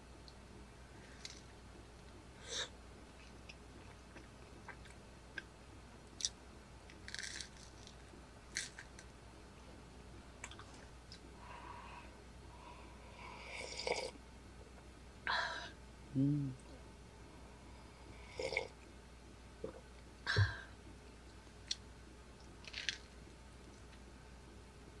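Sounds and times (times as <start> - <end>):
person chewing and crunching: 7.0 - 7.8.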